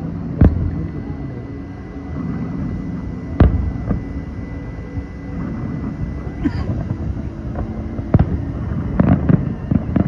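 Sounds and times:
distant fireworks rumble: 0.0s - 10.0s
faint firework thuds: 0.4s - 0.9s, 2.1s - 10.0s
sharp firework bang: 3.4s - 4.1s.

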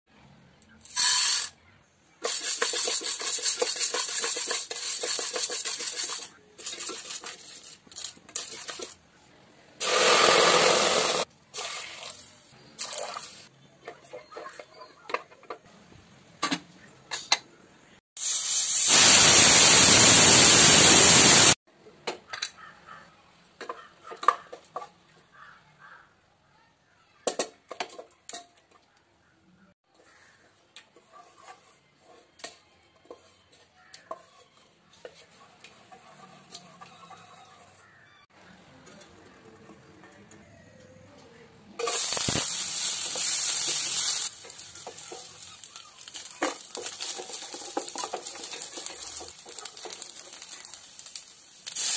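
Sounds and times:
water running into pot: 41.8s - 51.9s.

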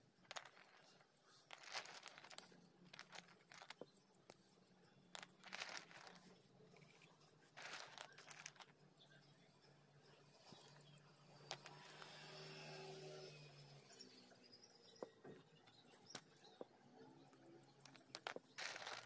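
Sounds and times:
crunchy rustling of clay chunks: 0.2s - 4.4s, 5.1s - 6.3s, 7.0s - 8.7s, 17.8s - 19.0s.

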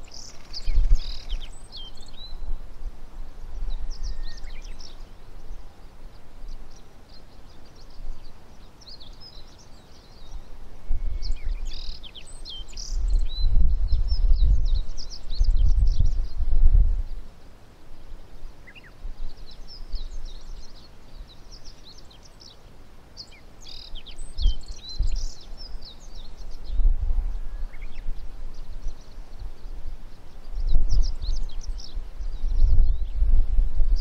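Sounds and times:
bird singing: 0.0s - 2.6s, 3.4s - 17.4s, 18.0s - 34.0s
low gusting rumble: 12.9s - 17.2s, 26.2s - 29.9s, 30.5s - 34.0s.

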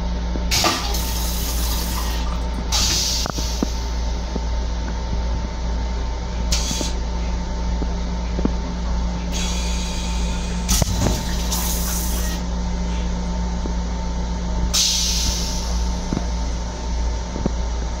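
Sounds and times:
railcar hum and rumble: 0.0s - 18.0s
air hissing: 0.5s - 4.1s, 6.5s - 7.0s, 9.3s - 12.4s, 14.7s - 16.5s.

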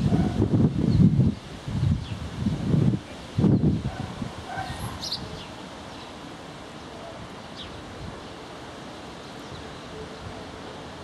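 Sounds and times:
wind noise on microphone: 0.0s - 5.6s, 7.2s - 8.3s
bird chirp: 4.6s - 6.2s.

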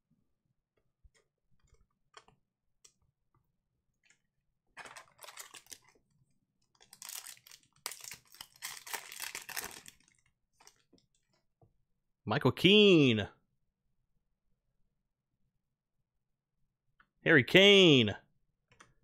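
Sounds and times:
foil wrapper crinkling: 4.8s - 6.0s, 6.7s - 10.8s.

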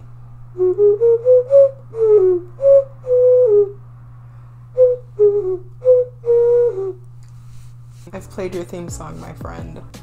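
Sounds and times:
ocarina melody: 0.6s - 3.8s, 4.7s - 7.0s.

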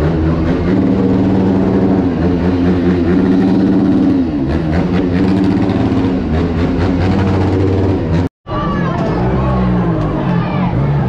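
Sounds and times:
vehicle engine running: 0.0s - 8.3s.

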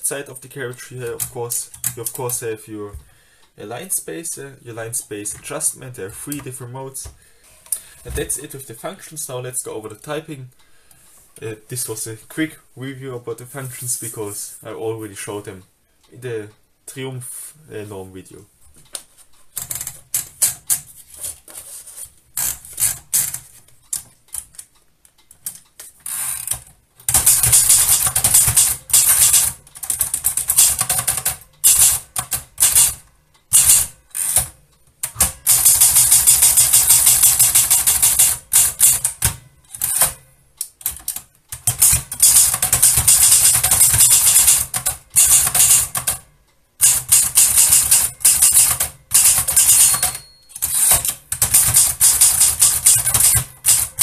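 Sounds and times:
typewriter paper feed clicks: 26.3s - 40.2s, 40.8s - 46.2s, 46.8s - 54.0s
fast typewriter typing: 26.4s - 40.2s, 40.8s - 46.2s, 46.8s - 54.0s.

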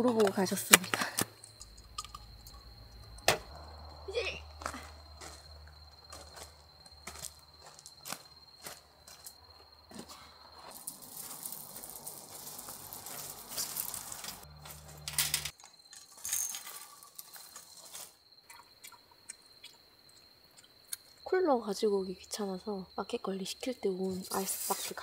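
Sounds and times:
insect trill: 0.0s - 25.0s
camping gear rustling: 4.2s - 18.2s
clicks and clinks: 10.8s - 17.7s.

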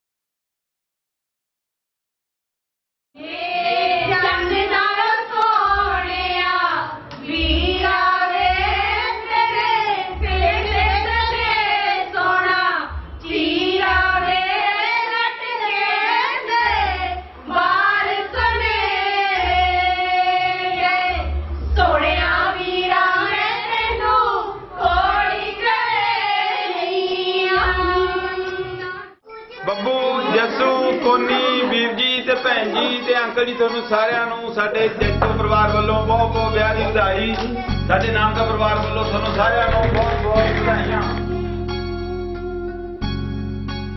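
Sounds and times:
women singing in unison: 3.2s - 29.2s
low uneven beat: 35.0s - 43.0s.

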